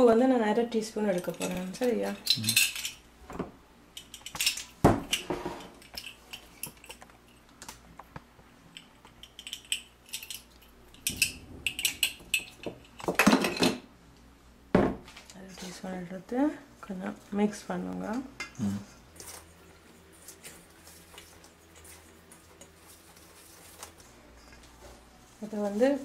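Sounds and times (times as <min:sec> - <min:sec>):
kitchenware clinking and tapping: 0:01.0 - 0:07.0, 0:08.7 - 0:13.9.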